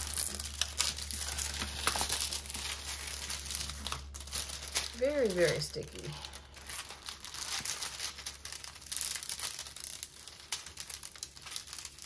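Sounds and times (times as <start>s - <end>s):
plastic film crinkling: 0.0s - 12.0s.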